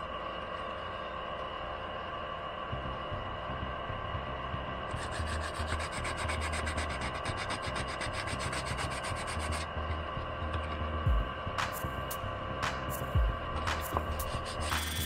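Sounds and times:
sandpaper rubbing: 0:05.0 - 0:09.7, 0:13.6 - 0:15.0.

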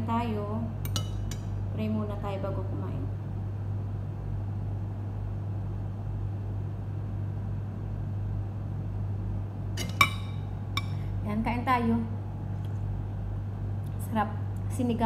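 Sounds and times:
appliance humming: 0:00.0 - 0:15.0
metal spoon clinking on plate: 0:00.8 - 0:01.5, 0:09.8 - 0:11.0.

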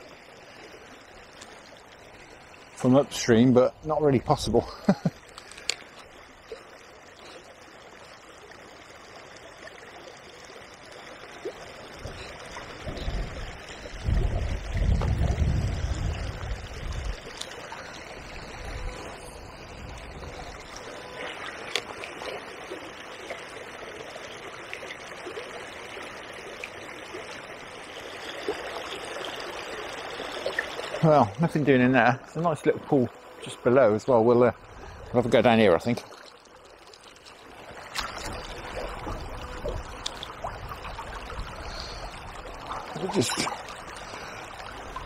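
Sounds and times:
wind buffeting microphone: 0:12.8 - 0:17.3.

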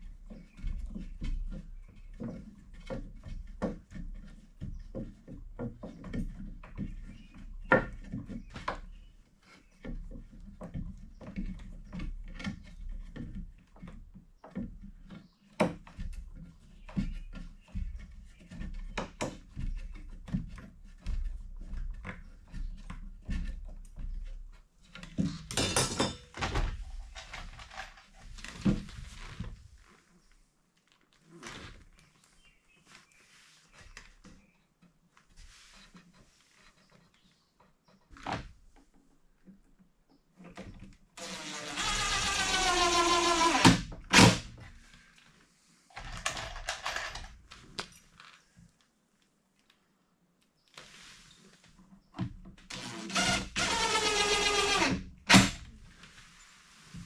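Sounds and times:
wood and hardware knocking: 0:00.2 - 0:09.0, 0:09.8 - 0:26.7.

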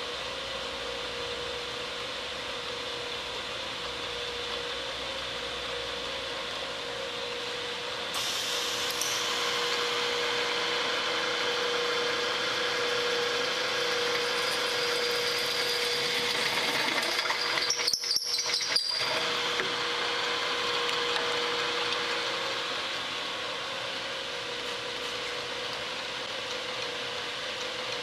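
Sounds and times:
spindle motor humming: 0:08.6 - 0:24.7
drill bit cutting metal: 0:12.4 - 0:16.6, 0:17.2 - 0:19.6.

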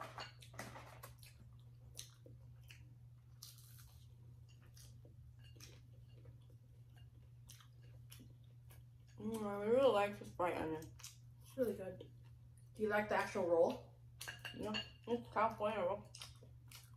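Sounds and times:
steady low hum: 0:00.0 - 0:16.9
people chewing: 0:00.4 - 0:09.8, 0:16.1 - 0:16.9.

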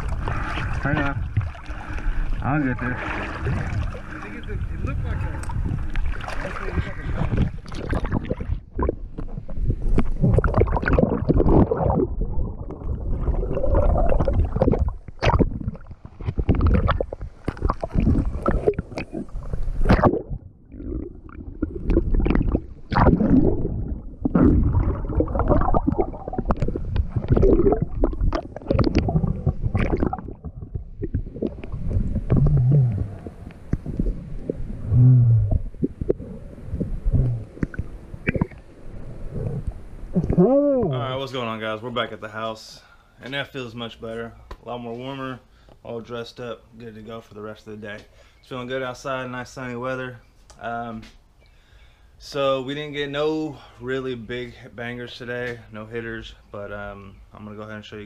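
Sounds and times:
underwater gurgling and bubbles: 0:00.0 - 0:41.0
knocks underwater: 0:04.8 - 0:38.6.

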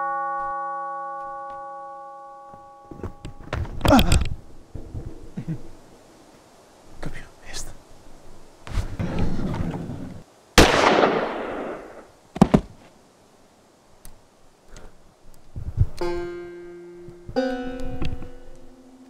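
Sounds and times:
revolver gunshot with echo: 0:10.6 - 0:12.0
sharp knocks: 0:12.4 - 0:12.7
plucked-string film score: 0:16.0 - 0:19.0.

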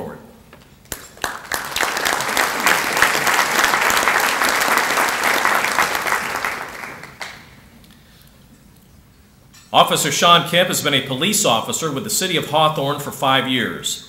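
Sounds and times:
audience applauding: 0:00.9 - 0:07.6.

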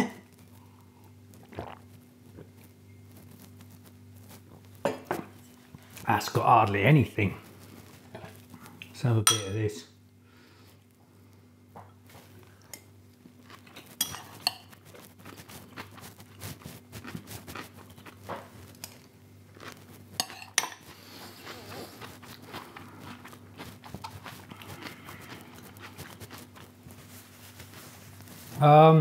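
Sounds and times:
fork clinking on ceramic bowl: 0:09.2 - 0:09.6, 0:14.0 - 0:14.7, 0:20.2 - 0:20.8
chewing: 0:12.1 - 0:28.4
fork scraping: 0:13.7 - 0:18.2, 0:19.6 - 0:26.7.

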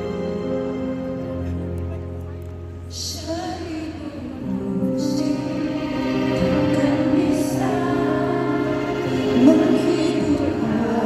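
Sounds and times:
woman singing a ballad: 0:02.9 - 0:11.0.

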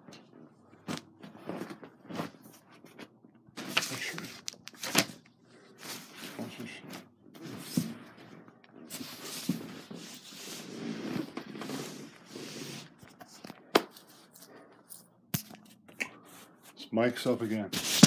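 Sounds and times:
bed sheets rustling: 0:00.4 - 0:03.0.

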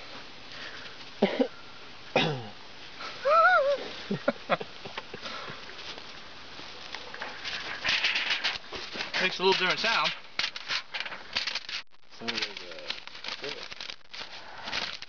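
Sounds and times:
person coughing: 0:01.2 - 0:01.5, 0:02.2 - 0:02.6
person saying ooh: 0:03.2 - 0:03.8.

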